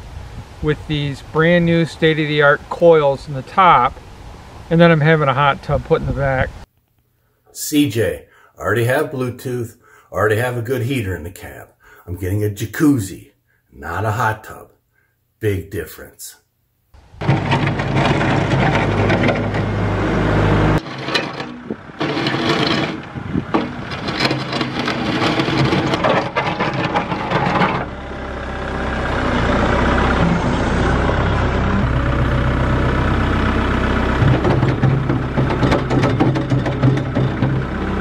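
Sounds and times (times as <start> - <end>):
tractor diesel engine running: 17.0 - 38.0
loader bucket pushing snow: 17.2 - 38.0.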